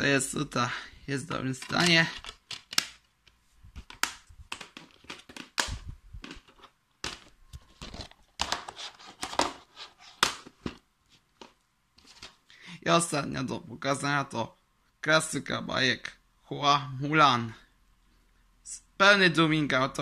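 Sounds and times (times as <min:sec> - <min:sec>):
plastic disc cases clicking and rattling: 0:01.5 - 0:10.8.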